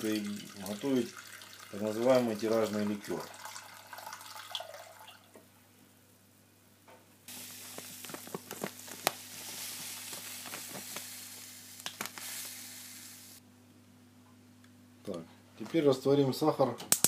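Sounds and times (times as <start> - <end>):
sugar grains pouring: 7.3 - 13.4
scattered clicks of grains: 7.6 - 12.7.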